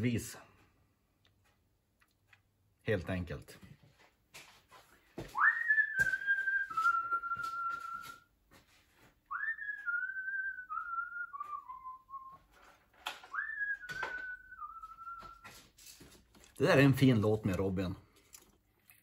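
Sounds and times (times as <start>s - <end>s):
man whistling a tune: 5.4s - 8.3s, 9.3s - 12.5s, 13.2s - 15.5s.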